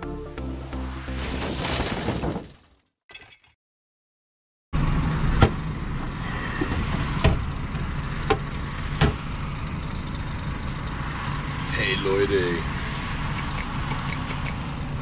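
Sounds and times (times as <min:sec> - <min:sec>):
diesel truck engine idling: 0:04.8 - 0:13.4
sharp clicks: 0:13.1 - 0:14.9.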